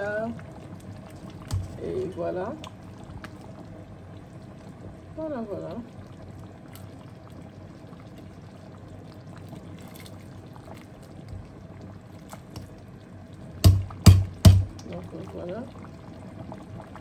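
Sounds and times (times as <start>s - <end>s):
ladle stirring soup: 0.8s - 3.5s
sharp loud knock: 13.6s - 14.7s.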